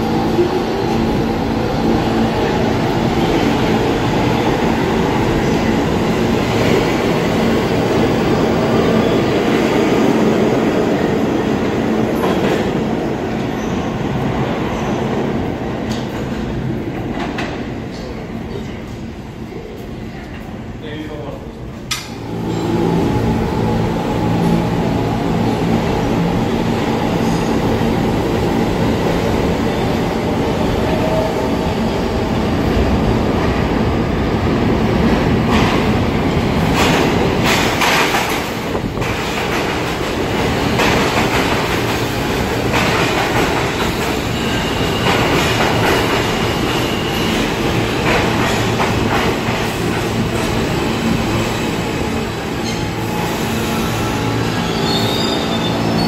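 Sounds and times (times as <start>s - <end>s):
train wheels rumbling on rails: 0.0s - 56.0s
high wheel squeal: 54.4s - 56.0s.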